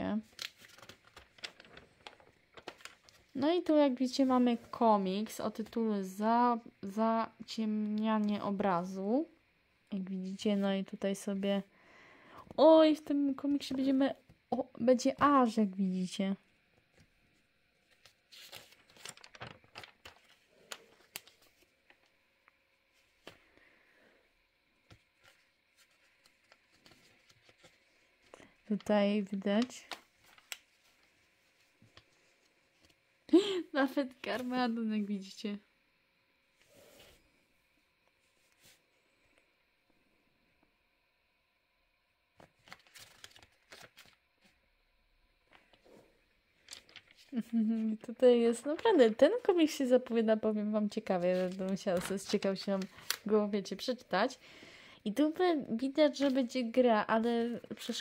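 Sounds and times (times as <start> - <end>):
magazine pages rustling: 0.2 - 3.4, 16.9 - 22.2, 24.9 - 33.0, 42.4 - 44.6, 46.6 - 47.9, 50.9 - 54.0, 56.1 - 56.7.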